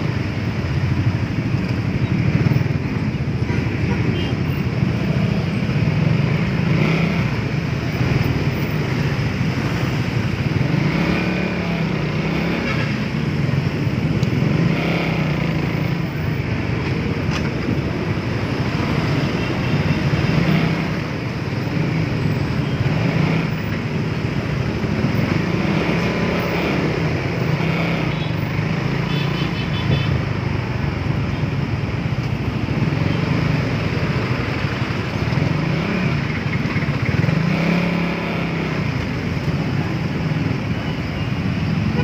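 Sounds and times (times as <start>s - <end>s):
motorcycle engine revving: 0.0s - 29.3s, 32.4s - 40.7s
road and traffic noise: 0.0s - 42.0s.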